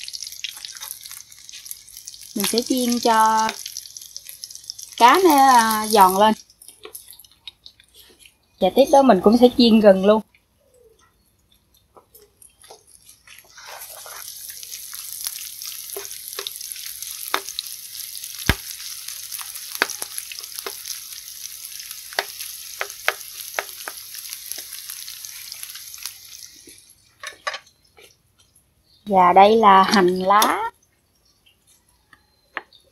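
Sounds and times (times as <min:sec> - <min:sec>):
hot oil sizzling in a frying pan: 0:00.0 - 0:07.8, 0:12.6 - 0:27.2
sharp clicks and pops from stirring: 0:06.4 - 0:08.0, 0:15.9 - 0:16.6, 0:17.2 - 0:17.7, 0:18.4 - 0:18.8, 0:19.7 - 0:20.9, 0:22.1 - 0:24.8.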